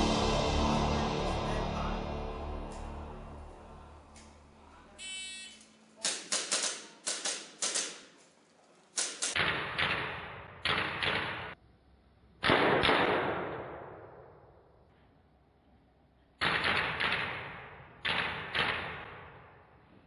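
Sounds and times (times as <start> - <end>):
airsoft pistol shots: 6.0 - 8.1, 9.0 - 11.6, 12.4 - 14.3, 16.4 - 19.5.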